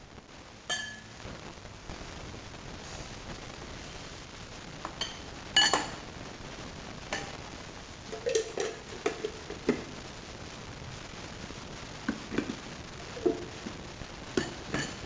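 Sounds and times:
ceramic bowl clinking against glass: 0.7 - 1.1, 5.0 - 5.9, 14.4 - 15.0
glass bowl and lid knocking: 0.7 - 1.1, 5.0 - 5.9, 14.4 - 15.0.

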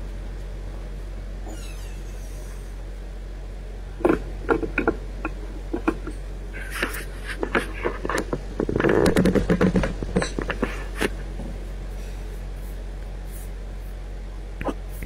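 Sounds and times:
low electrical hum: 0.0 - 15.0
clicks knocks and rustling: 7.4 - 11.2.

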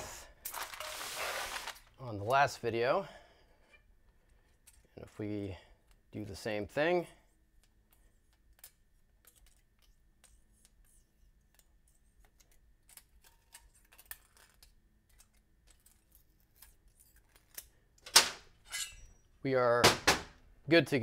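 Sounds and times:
feeler gauge scraping metal: 18.6 - 19.2.

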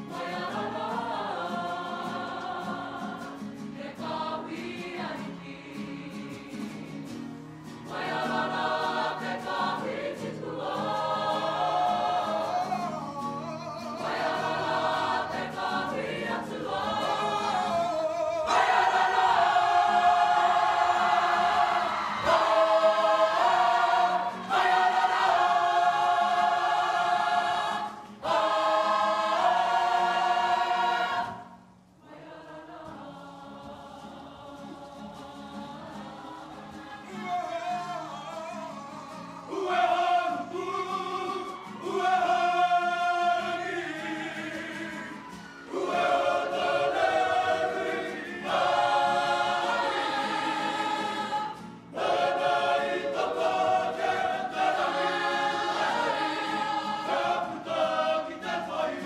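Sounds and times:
group singing in full voice: 0.0 - 59.0.

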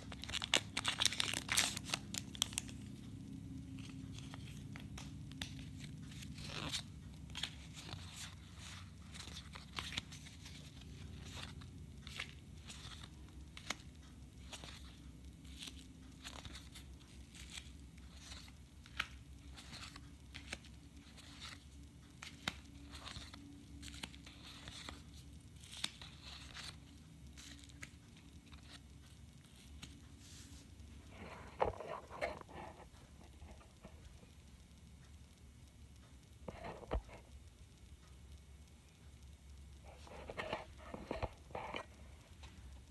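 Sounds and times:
cards crinkling on bubble wrap: 0.0 - 34.1
low steady hum: 0.0 - 42.9.

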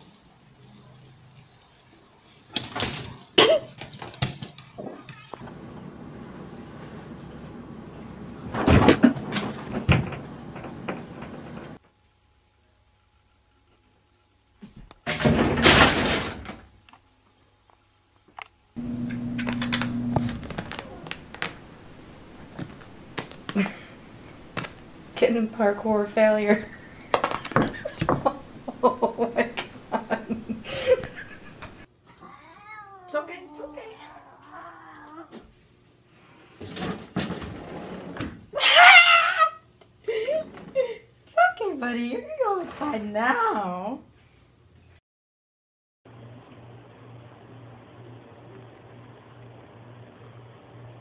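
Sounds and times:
wooden door banging and rattling: 8.6 - 11.6, 15.0 - 16.7
low steady hum: 18.7 - 31.9
shuffling: 18.8 - 28.8
cat meowing: 32.1 - 35.3.

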